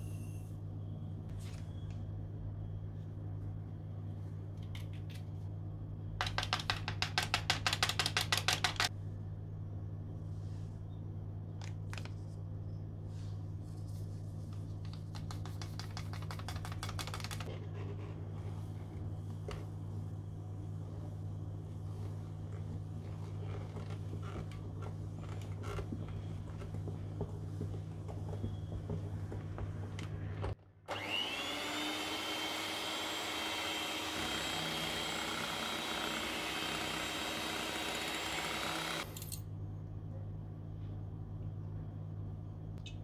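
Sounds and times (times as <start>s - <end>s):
steady low hum: 17.4s - 31.5s, 32.7s - 43.0s.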